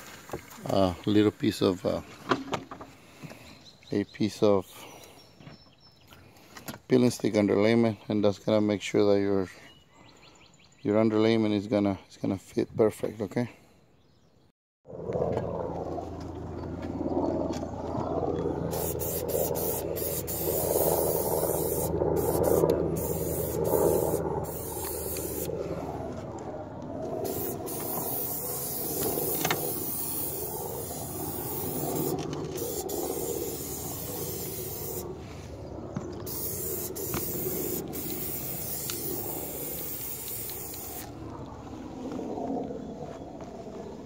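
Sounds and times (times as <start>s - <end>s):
aerosol can spraying: 18.7s - 25.5s, 27.3s - 35.0s, 36.3s - 41.1s.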